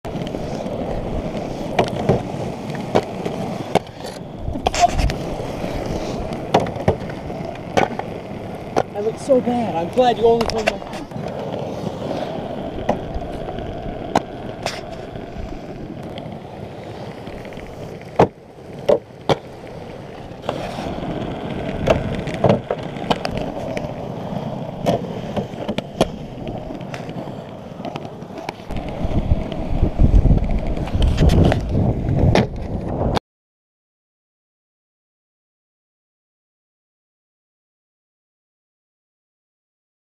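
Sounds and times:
skate wheels rolling on asphalt: 0.1 - 33.2
skates clacking on obstacle: 8.7 - 11.4.

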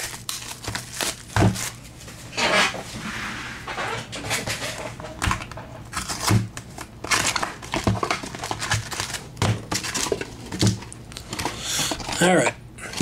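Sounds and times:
wrapping crinkling and tearing: 0.0 - 2.0, 5.9 - 12.4.

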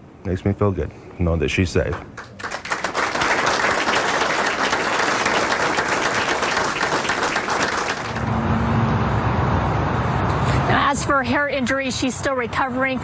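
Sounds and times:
audience applauding: 2.2 - 8.3.

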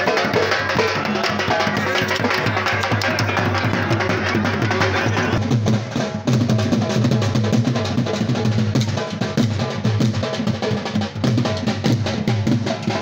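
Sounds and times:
dhol drumming: 0.0 - 13.0.

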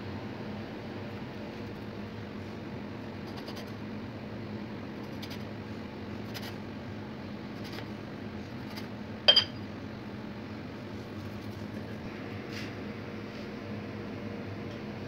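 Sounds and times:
steady background hum: 0.0 - 15.0
metal clink on marble: 9.3 - 9.6.

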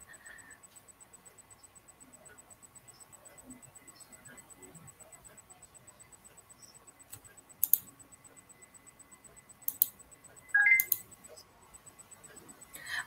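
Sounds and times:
faint room hiss: 0.0 - 13.0
computer mouse clicks: 6.6 - 8.0, 9.6 - 10.0, 10.6 - 11.4
brief tone: 10.5 - 11.0.

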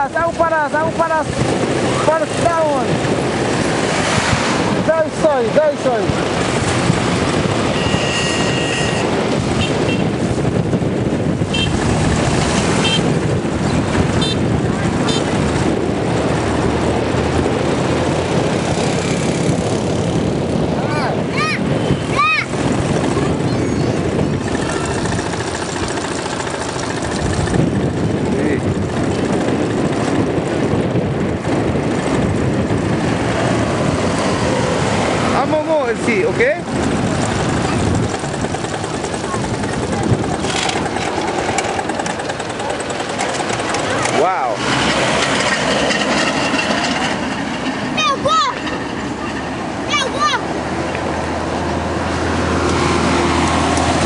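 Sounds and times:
vehicle road and wind noise: 0.0 - 54.0.

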